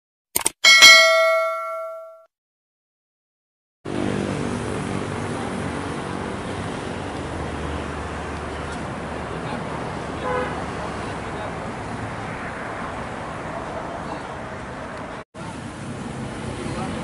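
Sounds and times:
bell-like notification ding: 0:00.6 - 0:02.3
street noise: 0:03.9 - 0:17.0.

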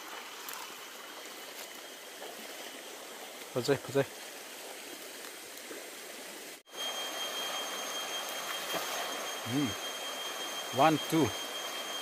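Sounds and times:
river running over stones: 0:00.0 - 0:12.0
thin high-pitched whine: 0:06.7 - 0:12.0.

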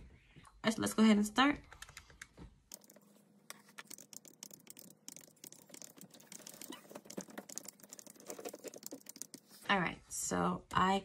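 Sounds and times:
calculator keys clicking: 0:01.7 - 0:09.6.

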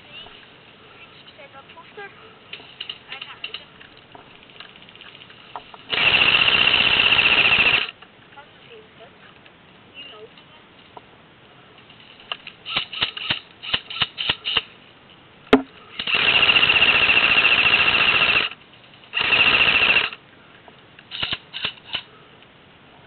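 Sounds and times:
airsoft rifle full-auto bursts: 0:05.9 - 0:08.0, 0:12.6 - 0:14.7, 0:16.0 - 0:20.2, 0:21.1 - 0:22.0.

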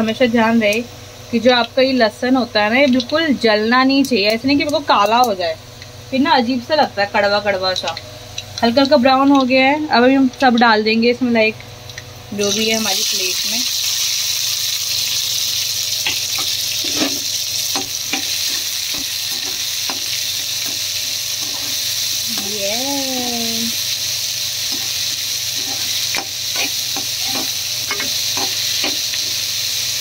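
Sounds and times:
onions sizzling in hot oil: 0:00.0 - 0:30.0
metal spatula scraping pan: 0:16.0 - 0:22.5, 0:24.7 - 0:29.4.

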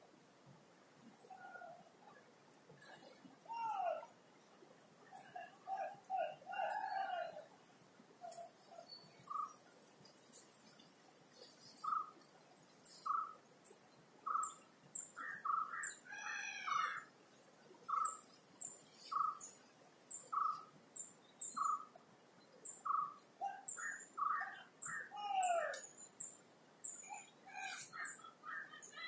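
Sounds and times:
birds chirping: 0:01.2 - 0:29.0
sliding bird calls: 0:11.4 - 0:12.2, 0:17.9 - 0:19.6.

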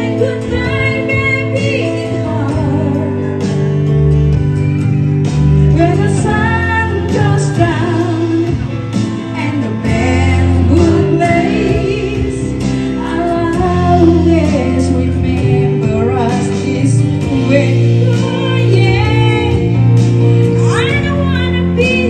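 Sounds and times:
woman singing pop ballad: 0:00.0 - 0:04.5, 0:05.3 - 0:22.0
karaoke backing track: 0:00.0 - 0:22.0.

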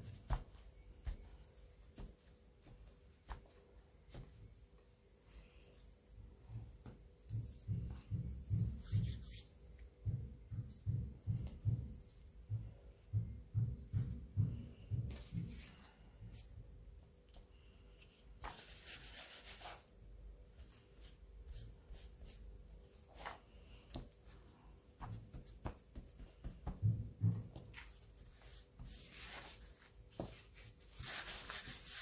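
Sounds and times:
paper towel brushing paper: 0:18.4 - 0:19.9, 0:27.7 - 0:32.0.

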